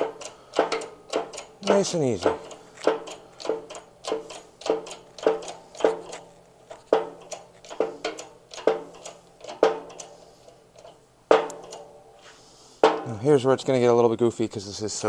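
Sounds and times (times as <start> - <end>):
shop press metallic clicks: 0.0 - 10.2, 10.8 - 12.0.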